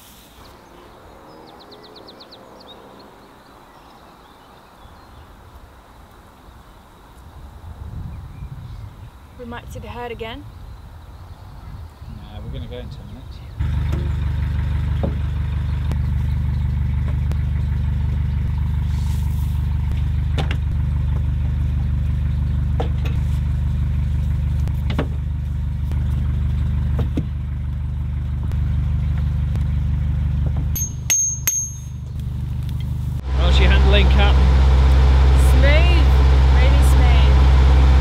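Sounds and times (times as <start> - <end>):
diesel engine idling: 13.6 - 30.8, 31.9 - 38.0
hammer knocking on steel pin: 30.8 - 32.0
ringing metal clanks: 30.8 - 32.2.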